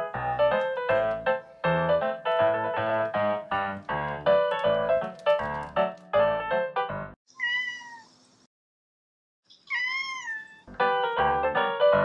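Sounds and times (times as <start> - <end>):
piano music: 0.0 - 7.2, 10.7 - 12.0
cat meowing: 7.3 - 8.1, 9.7 - 10.7.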